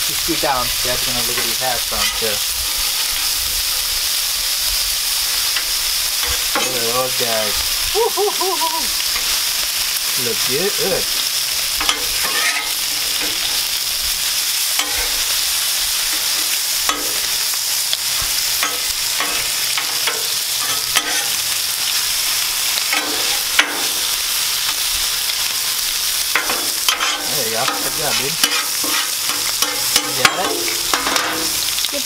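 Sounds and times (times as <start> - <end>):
food sizzling on a griddle: 0.0 - 32.0
metal tongs and spatula scraping: 0.2 - 3.4, 5.4 - 7.7, 9.0 - 13.9, 14.6 - 31.8.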